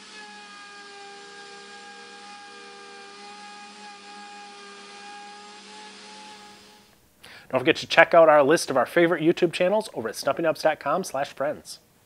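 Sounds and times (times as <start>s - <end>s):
router motor whining: 0.0s - 7.0s.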